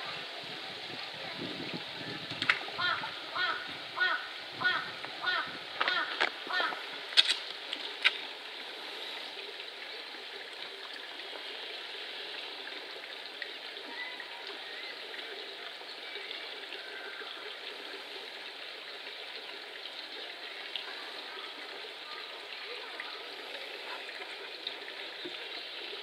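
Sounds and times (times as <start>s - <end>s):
trickle of running water: 0.0s - 26.0s.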